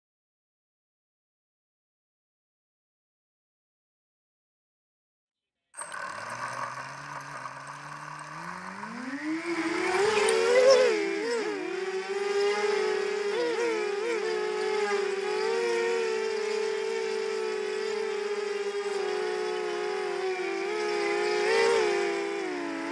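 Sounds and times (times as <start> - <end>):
drone motors buzzing: 5.8 - 22.9.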